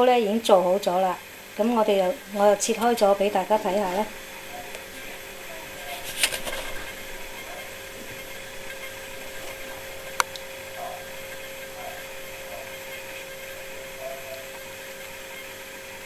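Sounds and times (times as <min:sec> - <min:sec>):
room hum with low hiss: 0:00.0 - 0:16.0
rustle: 0:05.8 - 0:07.5.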